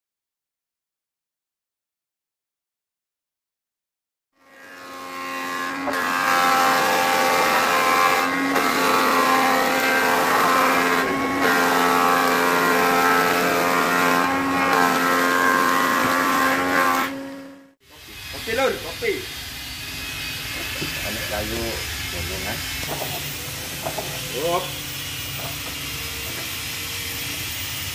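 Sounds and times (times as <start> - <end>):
planing machine motor whine: 4.4 - 27.9
cutters hissing: 17.9 - 27.9.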